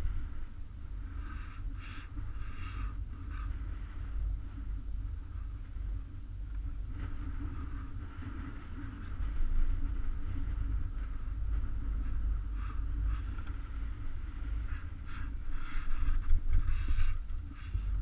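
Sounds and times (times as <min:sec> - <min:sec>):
chairlift rumbling: 0:00.0 - 0:18.0.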